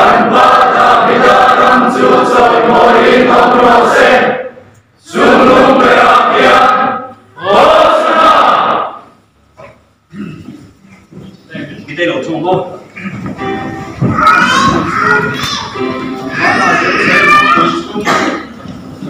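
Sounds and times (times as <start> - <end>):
congregation singing: 0.0 - 9.2, 14.8 - 19.0.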